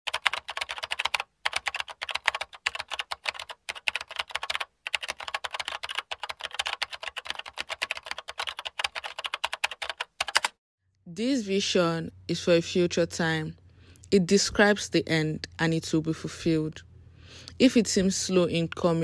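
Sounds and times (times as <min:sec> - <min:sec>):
computer keyboard typing: 0:00.1 - 0:10.6.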